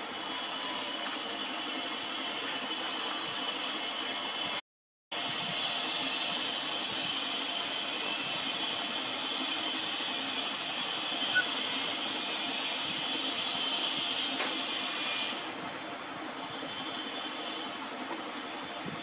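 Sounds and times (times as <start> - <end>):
short high squeak: 11.2 - 11.8.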